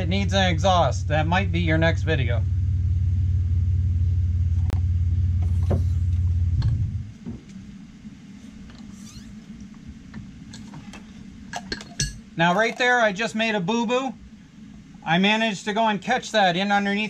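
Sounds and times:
car engine idling: 0.0 - 8.8.

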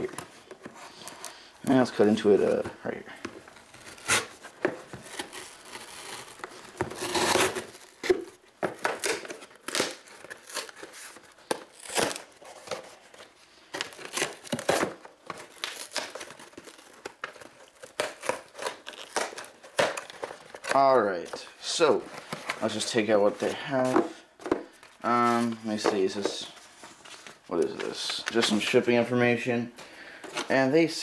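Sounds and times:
cardboard tearing: 3.6 - 13.1, 13.8 - 20.9.

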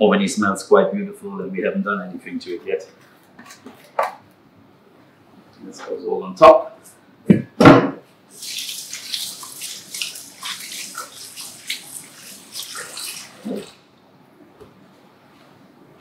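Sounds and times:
knock: 7.3 - 8.0
hands rinsing under water: 8.3 - 13.8
tap water running: 8.3 - 13.9.

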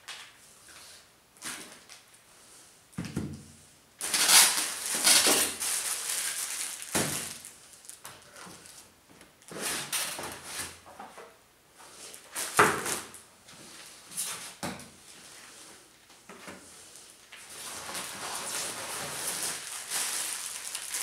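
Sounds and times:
items knocking on workbench: 3.0 - 3.4
plastic wrapping rustling: 4.0 - 10.5, 16.9 - 21.0.

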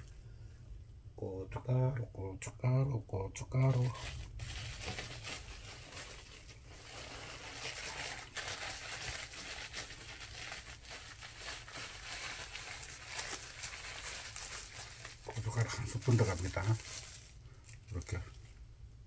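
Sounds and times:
steady low hum: 0.0 - 19.0
packet crinkling: 3.6 - 18.5.

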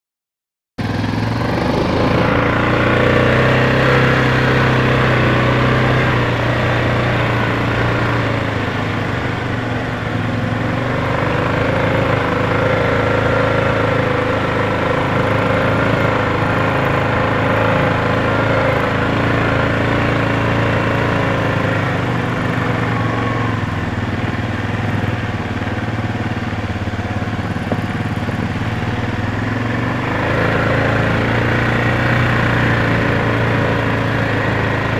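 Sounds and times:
atv engine running: 0.8 - 34.9
small dirt bike engine: 0.8 - 34.9.

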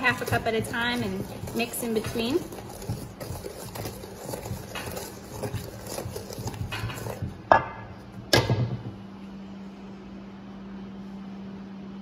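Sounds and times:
wooden spoon scraping bowl: 0.0 - 7.8.

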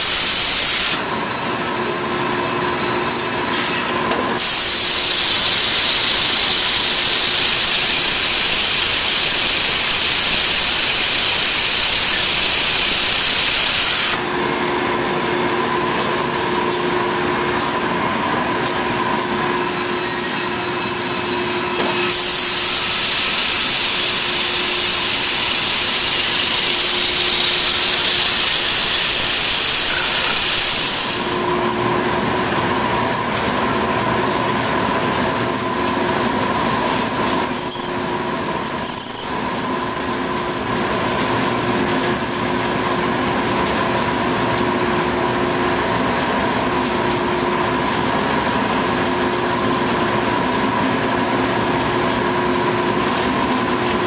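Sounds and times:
milling machine hiss: 0.0 - 3.4, 4.3 - 31.8.

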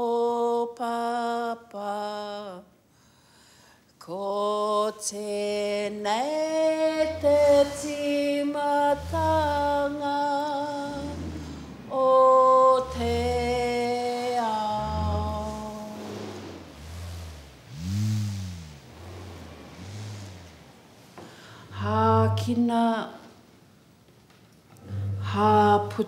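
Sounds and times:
person singing long notes: 6.2 - 17.1, 21.7 - 23.0, 24.8 - 26.0.

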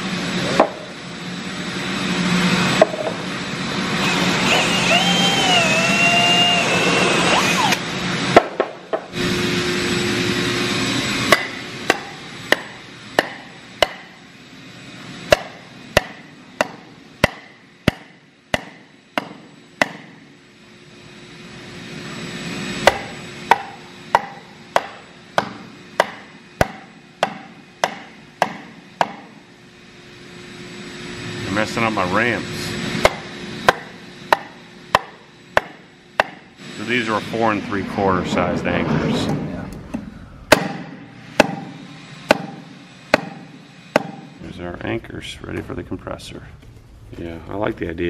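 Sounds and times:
cordless drill whining: 3.7 - 8.2
hammer knocking on wooden block: 11.3 - 14.1, 15.3 - 20.1, 22.9 - 29.2, 40.5 - 41.7, 42.3 - 43.4, 44.0 - 44.2.

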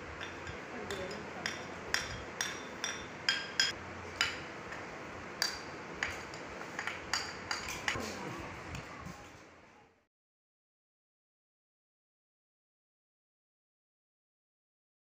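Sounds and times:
wooden spoon tapping ceramic plate: 0.2 - 4.4.

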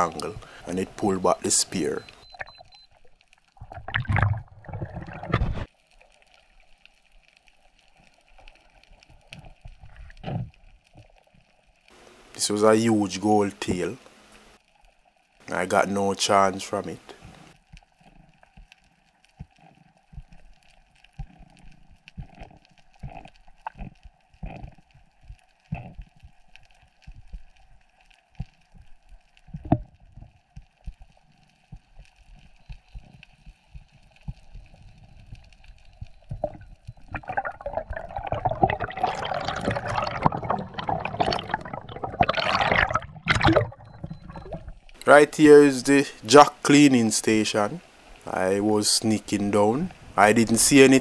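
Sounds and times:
faint steady hum: 0.0 - 51.0
faint underwater clicks and knocks: 2.1 - 12.0, 17.1 - 45.1
rushing gurgling water: 36.4 - 44.7.

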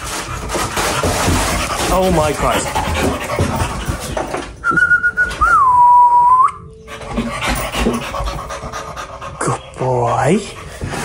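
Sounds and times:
dog panting: 0.0 - 4.6, 6.8 - 11.0
person whistling: 4.6 - 6.7.

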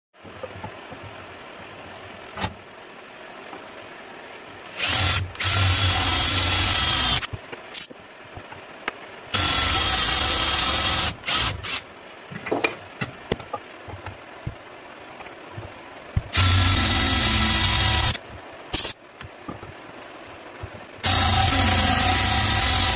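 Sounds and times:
cordless drill boring into wood: 4.8 - 7.3, 9.3 - 11.8, 16.3 - 18.2, 21.0 - 22.9.

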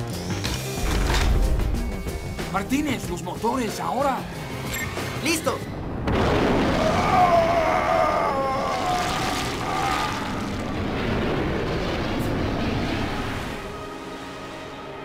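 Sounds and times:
spacecraft engine roar: 8.8 - 15.0.

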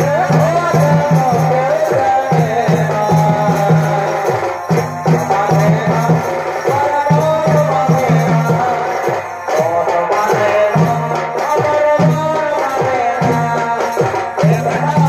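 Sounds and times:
jingling percussion: 0.0 - 15.0
repeating drum pattern: 0.0 - 15.0.

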